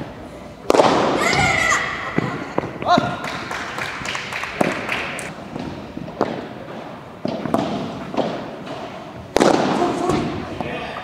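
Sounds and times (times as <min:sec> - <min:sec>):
padel balls struck by paddles: 0:00.6 - 0:01.3, 0:04.4 - 0:10.7.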